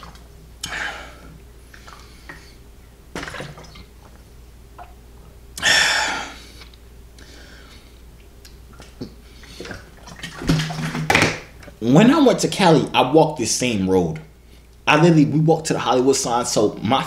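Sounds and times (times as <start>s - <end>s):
person gulping water: 3.2s - 5.0s.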